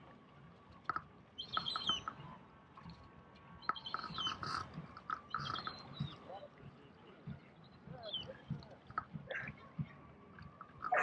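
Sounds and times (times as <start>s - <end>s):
bird calling: 1.4s - 2.1s, 3.7s - 6.2s.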